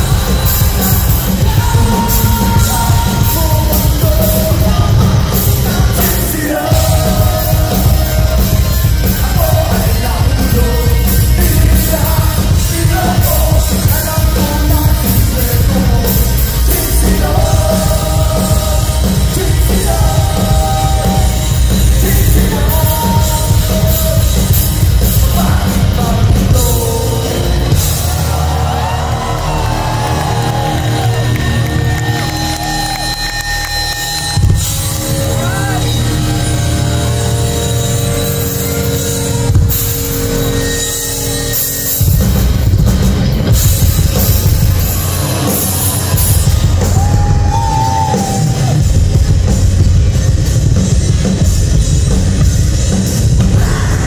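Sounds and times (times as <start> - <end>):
bass: 0.0 - 54.0
distorted electric guitars: 0.0 - 54.0
drums: 0.0 - 54.0
person singing and yelling: 53.4 - 54.0.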